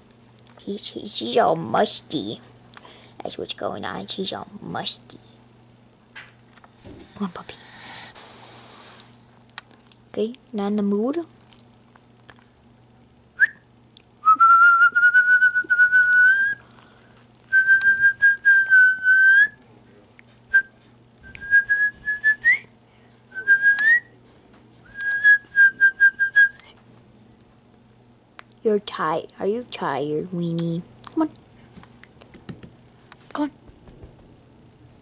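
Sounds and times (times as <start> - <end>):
person whistling: 14.2 - 16.6, 17.5 - 19.6, 21.3 - 22.7, 23.4 - 24.1, 24.9 - 26.6.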